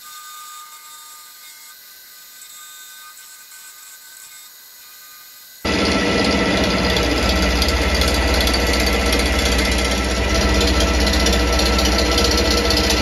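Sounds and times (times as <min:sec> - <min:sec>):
milling machine hum: 0:05.6 - 0:13.0.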